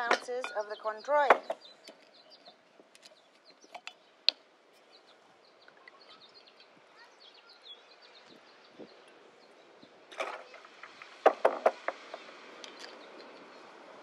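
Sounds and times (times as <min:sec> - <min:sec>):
glassware clinking: 0:00.0 - 0:01.6
small birds chirping: 0:00.0 - 0:14.0.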